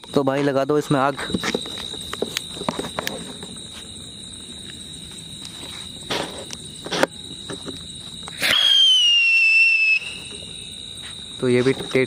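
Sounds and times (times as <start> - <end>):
crickets trilling: 0.0 - 12.0
firework crack: 8.3 - 10.6.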